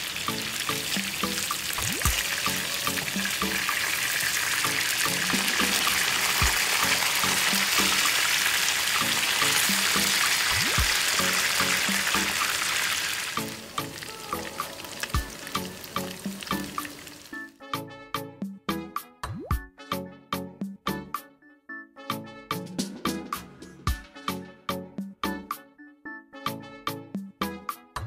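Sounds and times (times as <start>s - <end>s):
fish frying in hot oil: 0.0s - 17.5s.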